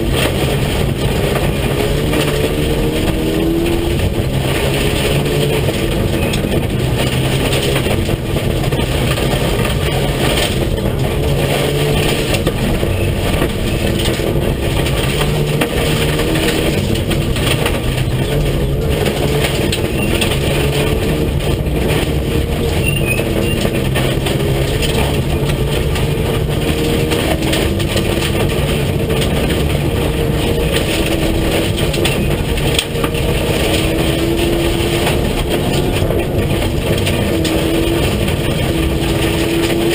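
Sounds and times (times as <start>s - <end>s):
rally car engine revving: 0.0s - 39.9s
tyres rumbling on gravel: 0.0s - 39.9s.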